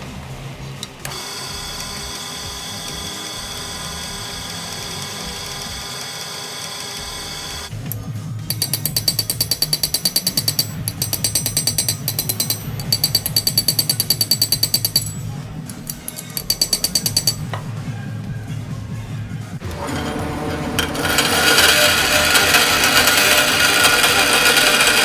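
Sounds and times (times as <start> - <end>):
small hammer tapping on metal: 8.5 - 17.7.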